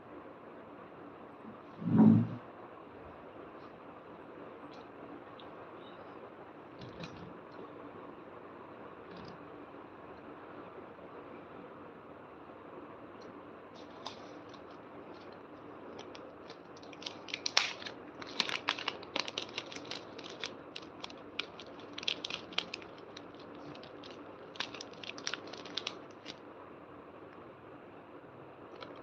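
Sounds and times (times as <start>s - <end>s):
plastic pouch crinkling: 13.8s - 26.4s, 28.8s - 29.0s.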